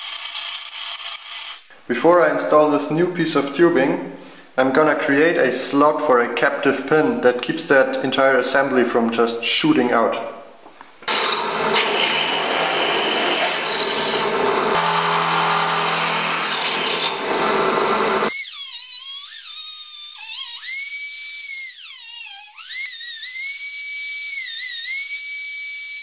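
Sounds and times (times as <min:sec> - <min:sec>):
rotary tool cut-off disc whining: 0:00.0 - 0:01.7, 0:11.1 - 0:26.0
drill press cutting steel: 0:11.1 - 0:26.0.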